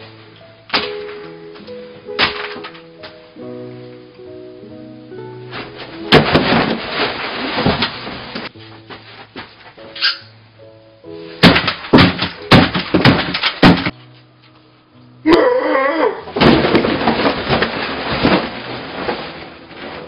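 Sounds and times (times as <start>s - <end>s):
light background music: 0.0s - 16.4s
loud thumps: 5.6s - 8.5s, 11.4s - 14.0s, 16.4s - 19.1s
table with plates crashing over: 5.6s - 8.5s, 11.4s - 14.0s, 16.3s - 20.0s
person yelling: 15.3s - 16.2s.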